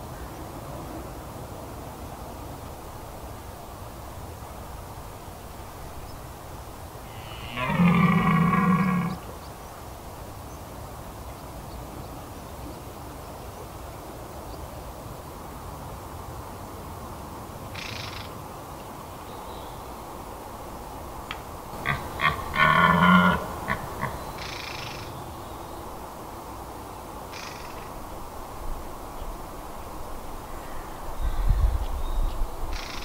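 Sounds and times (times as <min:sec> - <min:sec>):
deer stag roaring: 0:07.1 - 0:09.2, 0:21.8 - 0:24.2.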